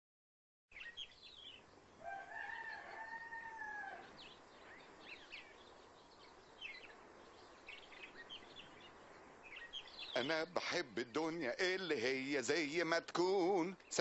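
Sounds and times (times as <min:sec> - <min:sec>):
small birds chirping: 0:00.7 - 0:14.0
rooster crowing: 0:02.0 - 0:04.2.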